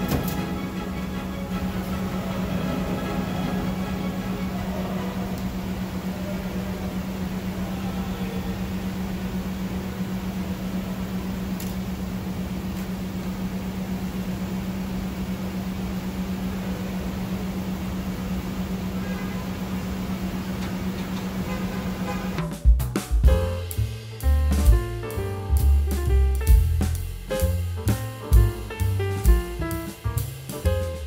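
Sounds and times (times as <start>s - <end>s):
droning machine hum: 0.0s - 22.6s.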